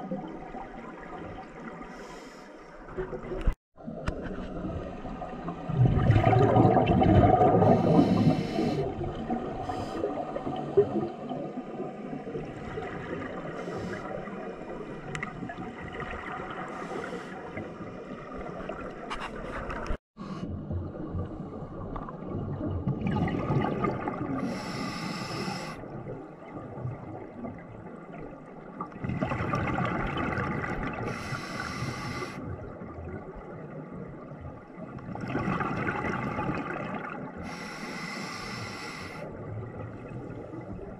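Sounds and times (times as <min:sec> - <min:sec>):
bubbling underwater: 0:04.6 - 0:13.5, 0:20.5 - 0:24.6, 0:28.8 - 0:31.1, 0:32.5 - 0:37.4
underwater regulator breathing: 0:07.6 - 0:09.0, 0:24.4 - 0:25.8, 0:31.1 - 0:32.4, 0:37.4 - 0:39.3.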